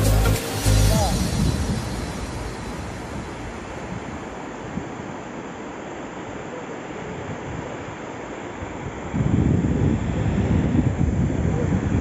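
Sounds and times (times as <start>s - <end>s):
sea surf breaking: 0.0s - 6.4s
wind buffeting microphone: 7.0s - 12.0s.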